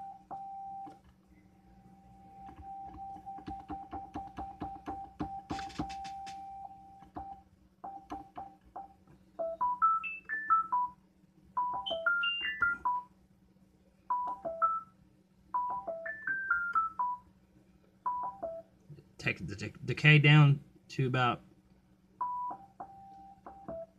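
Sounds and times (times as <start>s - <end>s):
faint low hum: 0.0s - 23.9s.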